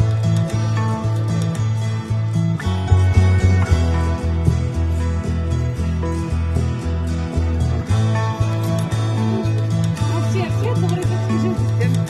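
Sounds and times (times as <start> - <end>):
background music with pulsing bass: 0.0 - 12.0.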